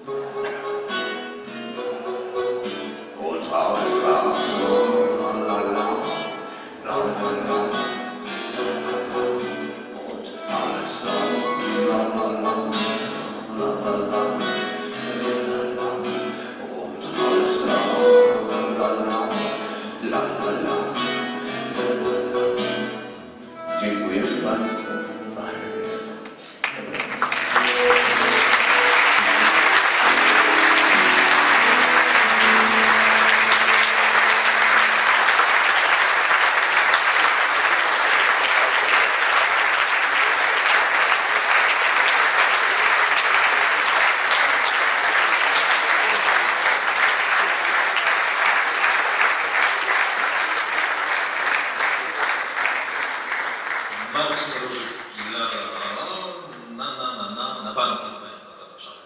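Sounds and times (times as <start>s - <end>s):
music: 0.0s - 38.5s
crowd clapping: 26.2s - 56.7s.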